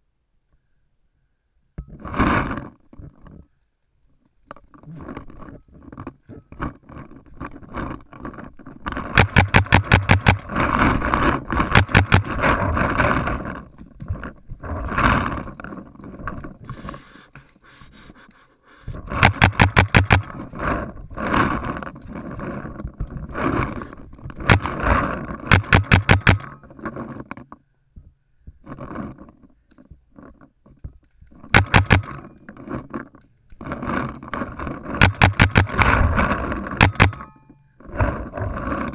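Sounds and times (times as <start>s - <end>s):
paintball marker firing rapidly: 9.1s - 12.5s, 19.0s - 20.5s, 24.4s - 26.6s, 31.5s - 32.4s, 34.8s - 37.4s.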